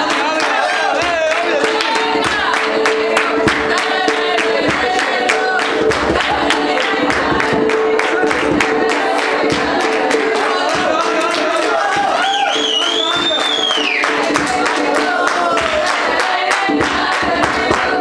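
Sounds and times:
women singing in chorus: 0.0s - 12.6s, 13.7s - 18.0s
rhythmic handclapping: 0.0s - 18.0s.

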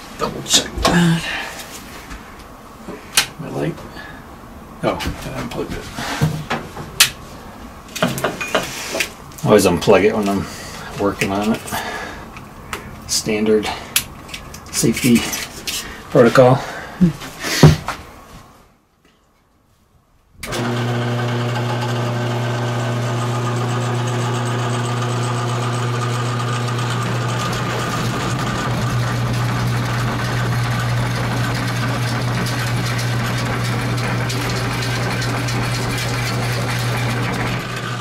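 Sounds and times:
cutter cutting wood: 20.4s - 38.0s
drill press motor humming: 20.4s - 38.0s.

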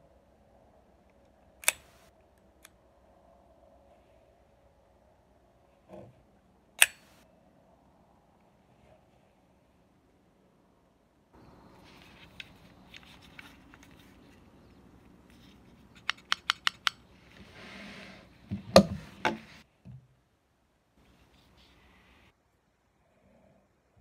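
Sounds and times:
pistol slide scraping: 1.6s - 2.1s, 6.8s - 7.2s
pistol clicks: 1.6s - 2.8s, 6.8s - 7.2s, 16.0s - 17.0s
pistol clacks: 6.8s - 7.2s, 15.9s - 17.0s.

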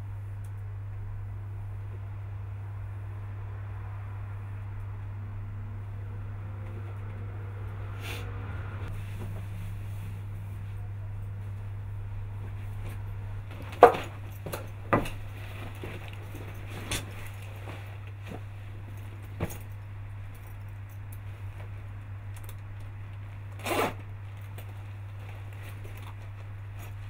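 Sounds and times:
low hum: 0.0s - 27.0s
stiff leather rustling: 12.4s - 27.0s
zipper pulled: 23.5s - 24.1s.

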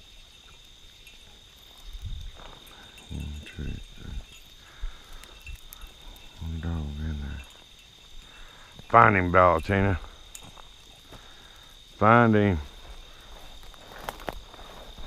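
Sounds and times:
crickets chirring: 0.0s - 15.0s
low drawn-out voice: 3.1s - 4.3s, 6.4s - 7.5s.

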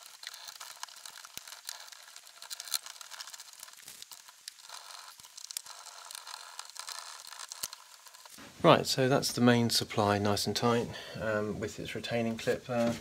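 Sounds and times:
cable rustling: 0.0s - 8.6s.

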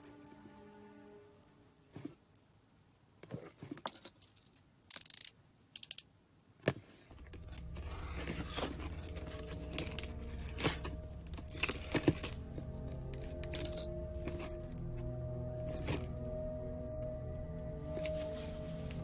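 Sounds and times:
low steady drone: 7.1s - 19.0s.

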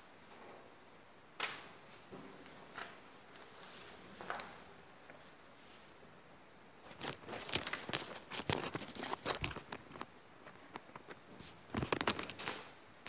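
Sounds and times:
paper rustling and crinkling: 1.9s - 4.6s, 6.8s - 12.7s.

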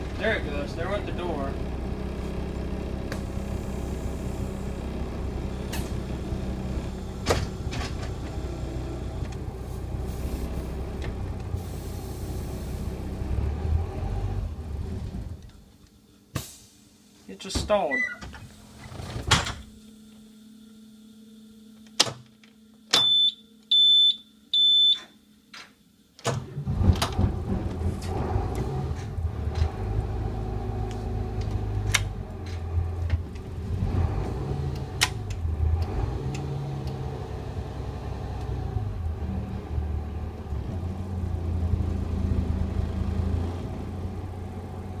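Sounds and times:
diesel engine starting and idling: 0.0s - 15.7s, 26.3s - 45.0s
short high warning beeps: 23.0s - 25.1s.

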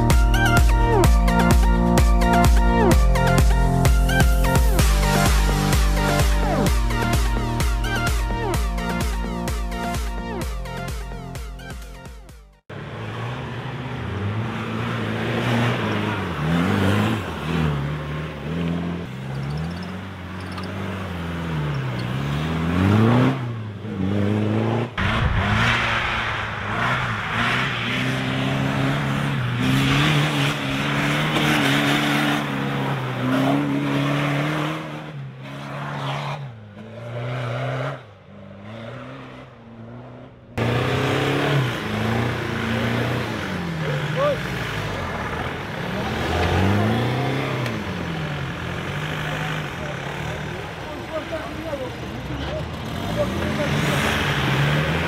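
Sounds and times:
off-road engines revving: 12.7s - 55.0s.

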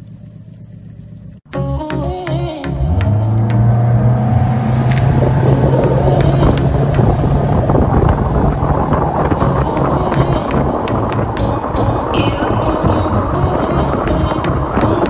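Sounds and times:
outboard motor running: 0.0s - 1.5s
wind noise: 3.2s - 15.0s.

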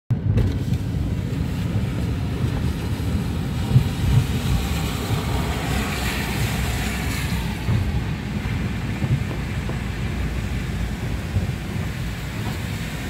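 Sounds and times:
car interior road rumble: 0.1s - 13.0s
tyres hissing on wet pavement: 0.5s - 13.0s.

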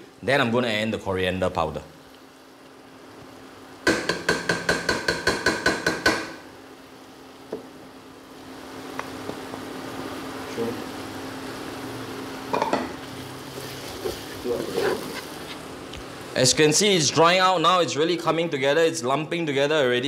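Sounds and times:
paste sizzling: 0.0s - 17.5s.

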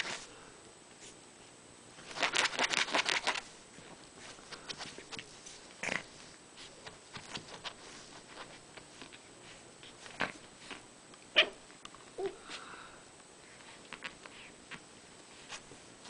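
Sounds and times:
sharp puppy cries: 11.4s - 11.6s.

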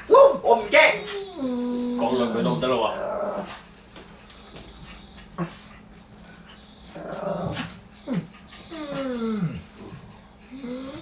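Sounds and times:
dog whining: 0.0s - 3.6s, 6.4s - 11.0s
dog grumbling: 0.8s - 3.6s, 6.9s - 11.0s.

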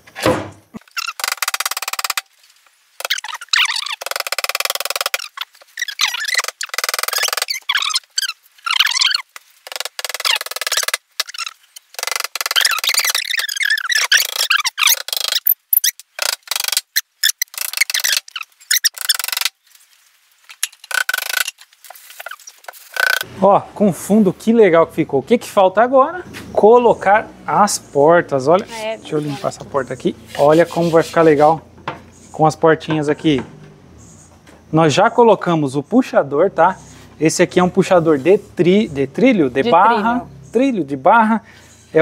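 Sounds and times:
high chirping: 3.0s - 16.3s, 16.9s - 19.5s.

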